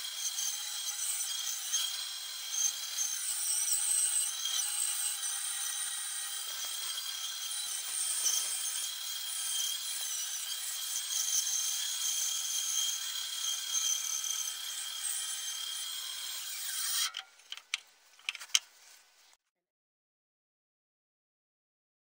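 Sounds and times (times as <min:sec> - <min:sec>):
bandsaw cutting wood: 0:00.0 - 0:17.3.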